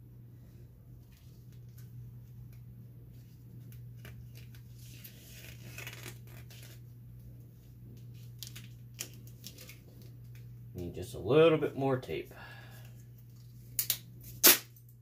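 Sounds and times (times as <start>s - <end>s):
steady low hum: 0.0s - 15.0s
duct tape crinkling: 3.2s - 7.0s, 8.0s - 10.5s.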